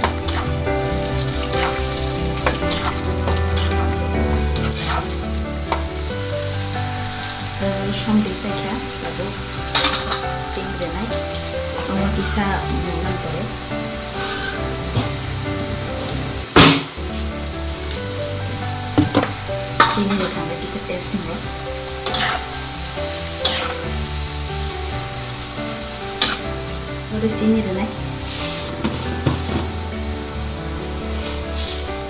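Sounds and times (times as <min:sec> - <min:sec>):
metal ladle scraping and knocking a wok: 0:00.0 - 0:06.0, 0:09.0 - 0:10.4, 0:22.0 - 0:22.6, 0:23.4 - 0:23.9, 0:26.2 - 0:26.5, 0:28.4 - 0:29.8
food sizzling in a wok: 0:00.0 - 0:32.0.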